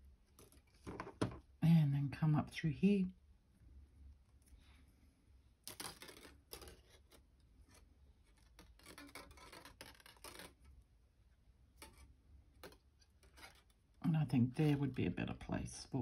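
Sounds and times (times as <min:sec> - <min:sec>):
wire scraping and rustling: 0:05.6 - 0:10.8, 0:11.7 - 0:15.0.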